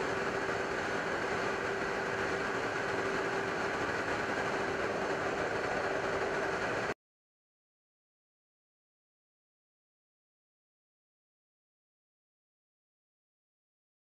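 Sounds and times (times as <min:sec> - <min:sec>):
jet engine running: 0:00.0 - 0:07.0.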